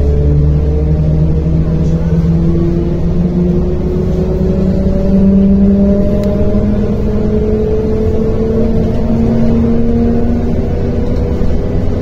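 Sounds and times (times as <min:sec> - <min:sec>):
bus engine rumble from inside: 0:00.0 - 0:12.0.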